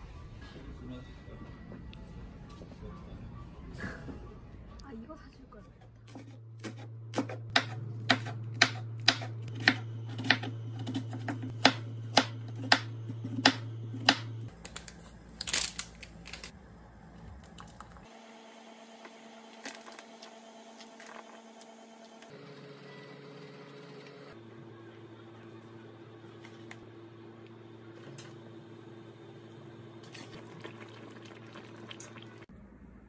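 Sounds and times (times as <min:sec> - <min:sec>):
knife chopping on wooden board: 0:06.1 - 0:14.3.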